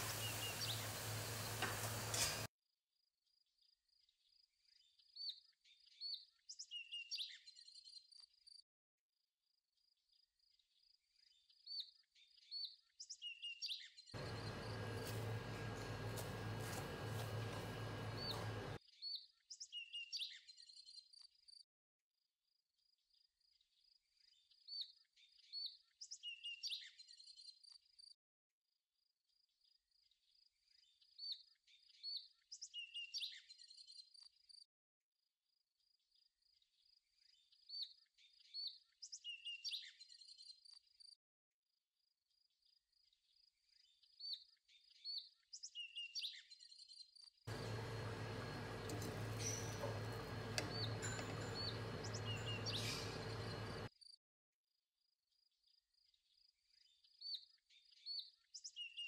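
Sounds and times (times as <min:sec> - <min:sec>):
faint birdsong chirps and whistles: 0:00.0 - 0:02.4, 0:04.2 - 0:08.3, 0:10.8 - 0:21.3, 0:24.3 - 0:27.8, 0:30.3 - 0:34.6, 0:36.8 - 0:41.2, 0:43.8 - 0:53.9, 0:56.3 - 0:59.0
steady high bird trill: 0:00.0 - 0:02.4, 0:14.2 - 0:18.8, 0:47.5 - 0:53.9.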